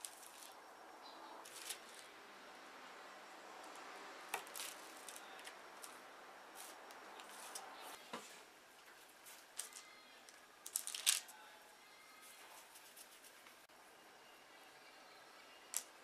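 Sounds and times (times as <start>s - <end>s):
paper and plastic wrap crinkling: 10.7s - 11.3s.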